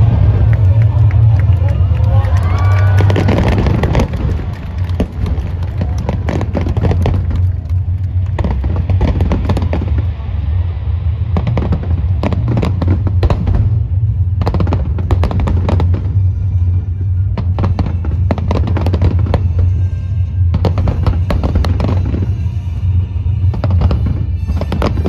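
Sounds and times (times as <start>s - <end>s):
fireworks bursting and crackling: 0.0s - 25.0s
low rumble: 0.0s - 25.0s.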